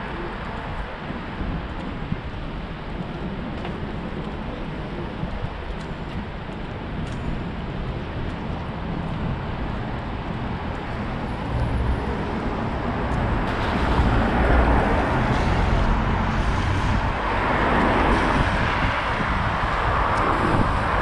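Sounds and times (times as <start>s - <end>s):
cars driving past: 8.6s - 21.0s.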